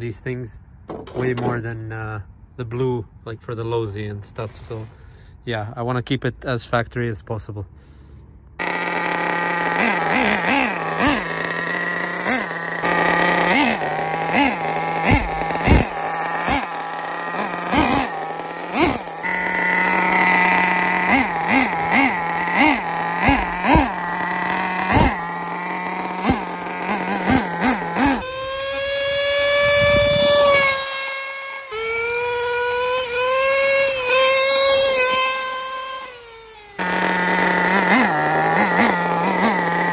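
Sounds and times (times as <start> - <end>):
nitro engine idling with throttle blips: 8.5 - 39.9.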